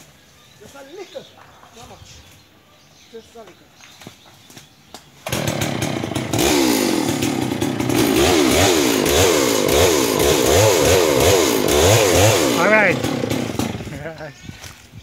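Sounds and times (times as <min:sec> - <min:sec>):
chainsaw revving: 0:05.2 - 0:14.2.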